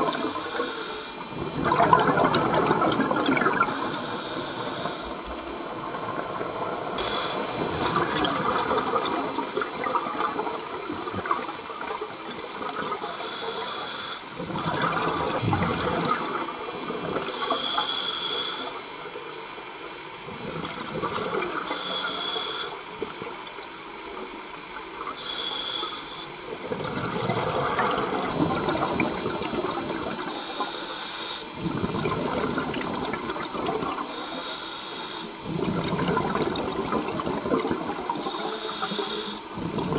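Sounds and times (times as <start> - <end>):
exhaled bubbles rushing: 0.0 - 13.1, 14.3 - 17.5, 20.2 - 21.8, 26.5 - 30.8, 31.5 - 34.3, 35.4 - 39.9
regulator inhale hiss: 0.4 - 1.3, 3.7 - 5.3, 7.0 - 7.7, 13.1 - 14.3, 17.3 - 18.8, 21.7 - 22.9, 25.1 - 26.4, 30.3 - 31.6, 34.1 - 35.4, 38.2 - 39.5.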